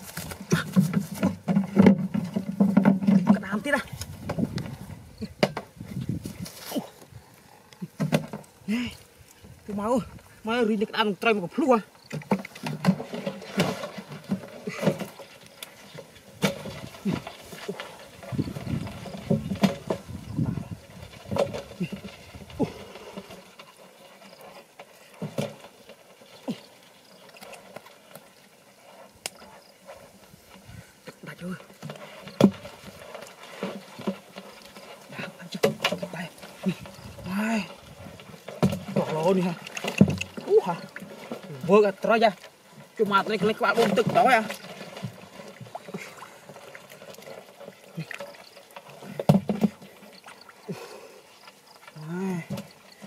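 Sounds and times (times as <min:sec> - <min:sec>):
fish knocking in plastic can: 0:38.6 - 0:40.5
splashes in shallow muddy water: 0:39.2 - 0:42.4.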